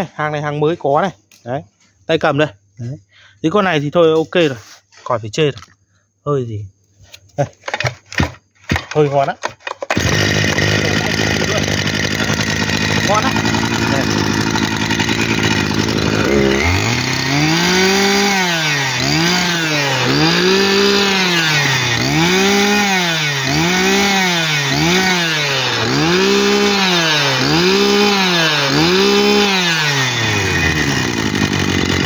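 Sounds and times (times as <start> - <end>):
brush cutter engine revving: 9.8 - 32.0.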